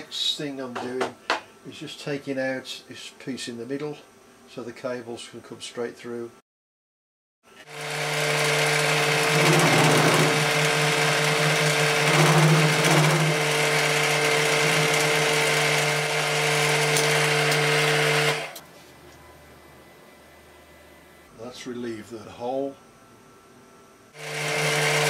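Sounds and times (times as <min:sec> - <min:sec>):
end mill cutting metal: 0:07.6 - 0:18.6, 0:24.2 - 0:25.0
milling machine motor running: 0:07.6 - 0:18.6, 0:24.2 - 0:25.0.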